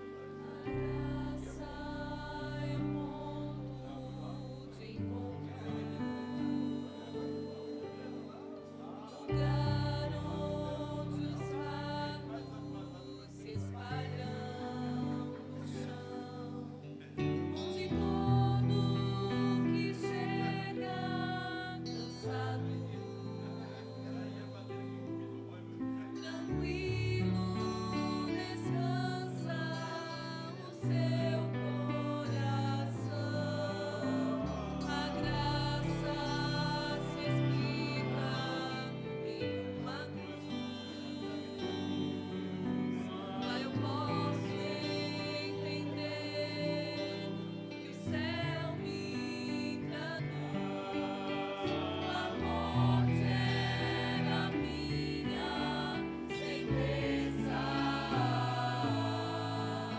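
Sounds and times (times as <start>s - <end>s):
choir singing gospel: 0.0s - 59.9s.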